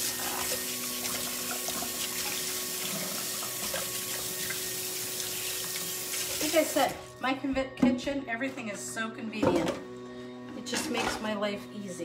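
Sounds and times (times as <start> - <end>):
faucet running into sink: 0.0 - 7.0.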